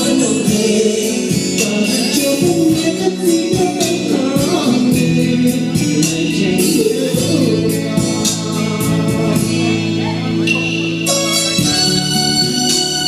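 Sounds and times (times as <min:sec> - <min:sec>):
man singing into microphone: 0:00.0 - 0:10.3
loud backing music with beat: 0:00.0 - 0:13.0.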